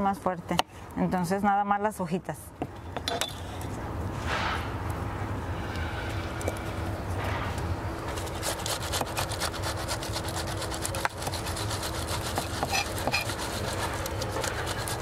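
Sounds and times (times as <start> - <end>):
food rasping on metal grater: 8.1 - 15.0.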